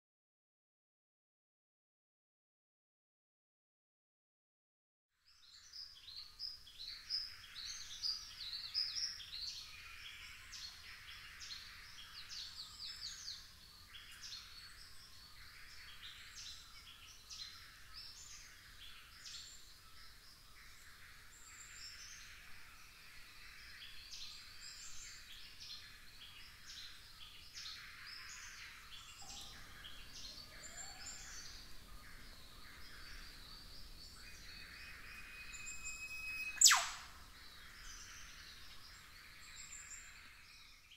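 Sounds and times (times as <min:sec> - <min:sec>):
birds chirping and whistling: 0:32.8 - 0:38.8.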